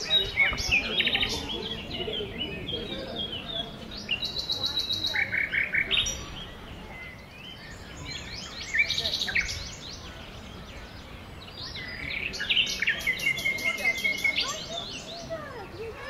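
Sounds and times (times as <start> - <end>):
songbirds chirping: 0.0 - 16.0.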